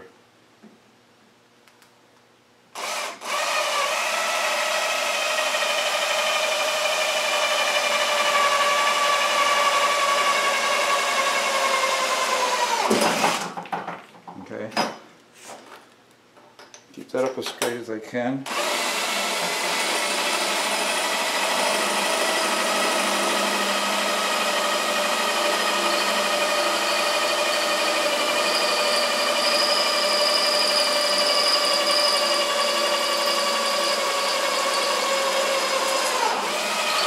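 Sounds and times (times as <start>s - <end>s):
cordless drill whining: 2.8s - 13.4s, 18.5s - 37.0s.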